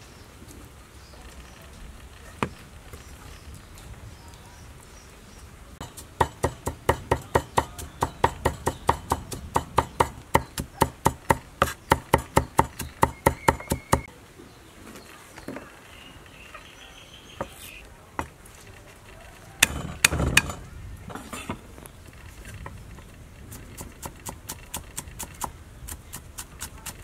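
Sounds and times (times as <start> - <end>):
cleaver chopping on wooden block: 5.8 - 14.1, 19.6 - 20.6.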